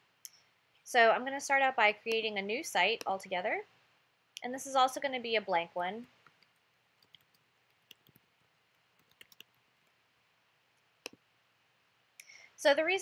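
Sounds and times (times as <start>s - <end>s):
keyboard typing: 6.4s - 10.0s.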